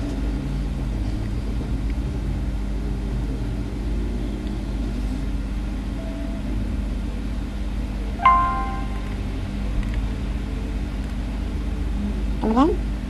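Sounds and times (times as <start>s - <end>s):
constant hum: 0.0s - 13.0s
faint short tone: 8.2s - 9.2s.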